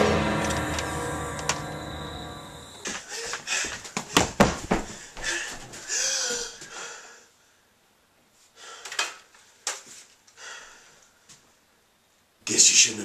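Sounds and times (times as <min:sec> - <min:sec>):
person breathing hard and wheezing: 0:02.8 - 0:07.6, 0:08.5 - 0:09.2, 0:10.3 - 0:11.0.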